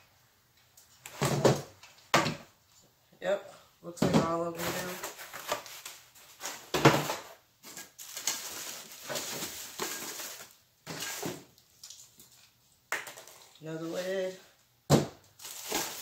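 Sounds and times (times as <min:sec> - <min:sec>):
cardboard and plastic wrap rustling: 0:04.2 - 0:12.5, 0:15.3 - 0:16.0.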